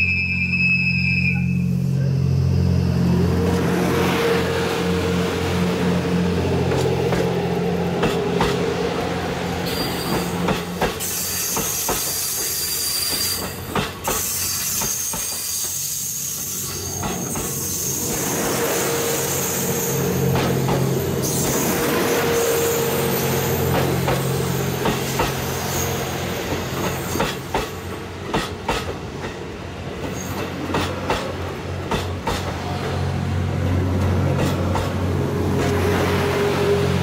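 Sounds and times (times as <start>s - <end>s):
diesel engine drone: 1.4s - 9.6s
train wheels clicking on rail joints: 6.5s - 36.1s.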